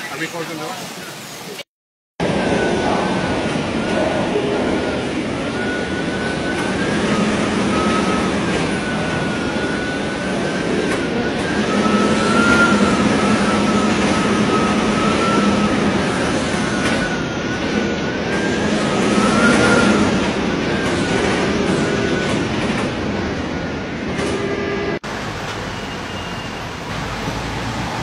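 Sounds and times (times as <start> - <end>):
high wind whistle: 2.2 - 22.5
hurricane wind: 2.2 - 25.4
driving rain: 25.1 - 28.0.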